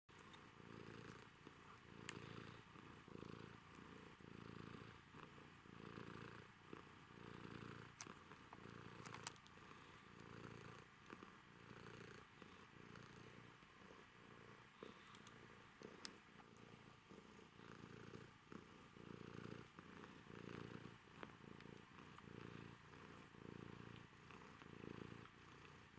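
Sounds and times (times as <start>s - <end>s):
cat purring: 0.1s - 25.9s
faint clicks: 2.0s - 2.3s, 7.9s - 9.6s, 14.8s - 16.6s.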